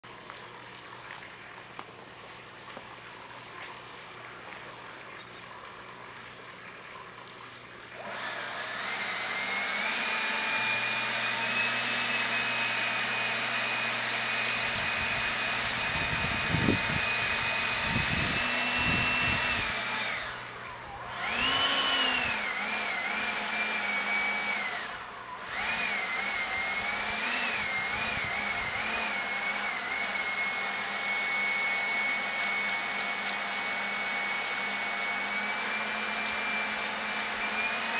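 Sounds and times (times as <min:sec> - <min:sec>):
propeller whirring in wind: 0:14.4 - 0:30.3.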